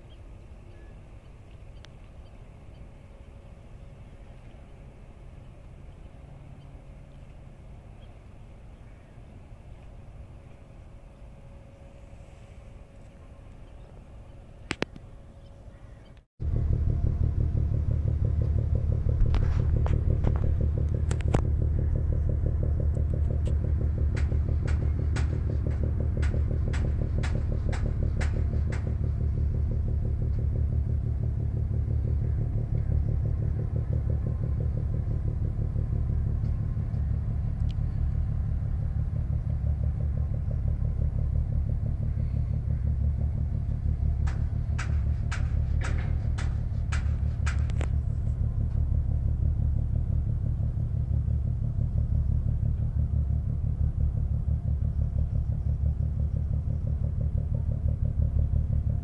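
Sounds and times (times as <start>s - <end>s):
engine running: 0.0s - 59.0s
sharp clicks: 22.9s - 29.0s, 43.6s - 48.8s.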